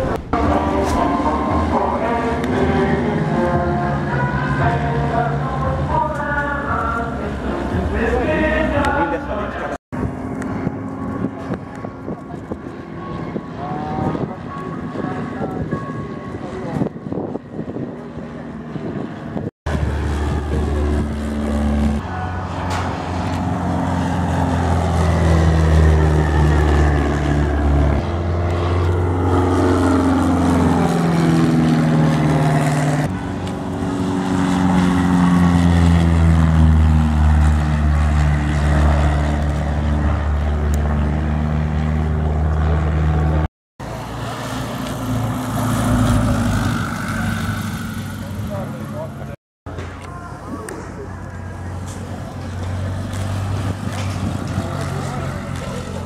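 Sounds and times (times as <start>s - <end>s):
light aircraft engine droning past: 0.0s - 56.0s.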